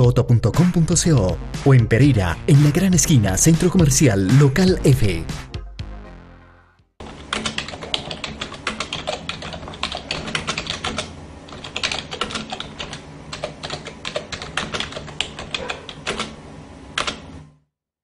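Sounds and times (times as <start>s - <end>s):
keyboard typing clicks: 7.1s - 16.4s.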